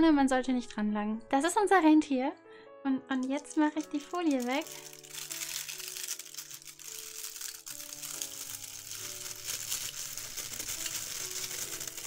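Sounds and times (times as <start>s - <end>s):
quiet background music: 0.0s - 12.0s
paper crinkling as peeled: 3.2s - 12.0s.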